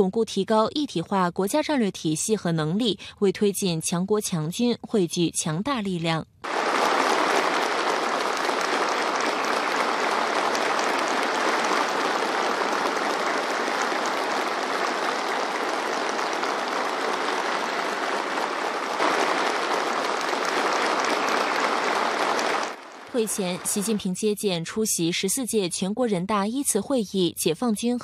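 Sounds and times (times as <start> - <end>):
crowd applauding: 6.4 - 24.0.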